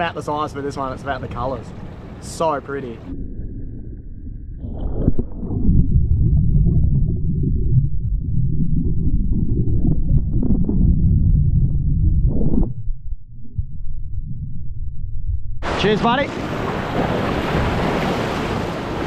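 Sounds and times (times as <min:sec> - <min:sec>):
muffled underwater surf churning: 0:00.8 - 0:19.0
breaking waves: 0:15.6 - 0:19.0.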